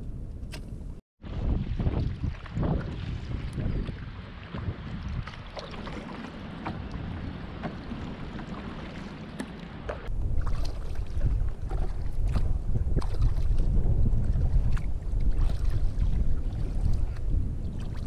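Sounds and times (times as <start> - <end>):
wind buffeting microphone: 0.0 - 18.0
paddle strokes in water: 1.2 - 18.0
water lapping: 1.2 - 18.0
water drips and splashes: 1.3 - 18.0.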